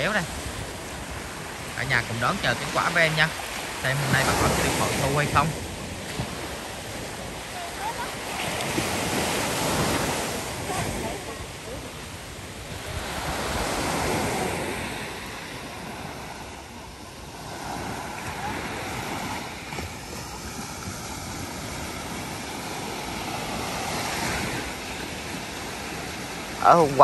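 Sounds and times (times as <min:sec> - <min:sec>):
wind buffeting microphone: 0:00.0 - 0:02.4
sea surf breaking on beach: 0:00.0 - 0:27.0.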